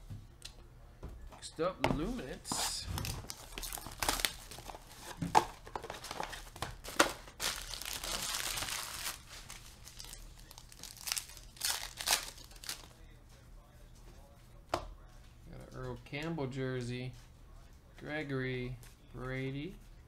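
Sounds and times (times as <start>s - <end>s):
foil pack crinkling: 3.0s - 12.9s
foil pack ripping: 6.8s - 12.9s.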